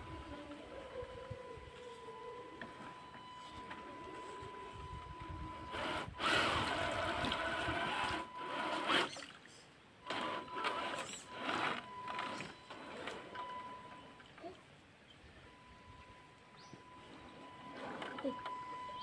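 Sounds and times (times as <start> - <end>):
faint steady whine: 0.0 - 19.0
wheels splashing water: 6.1 - 15.4.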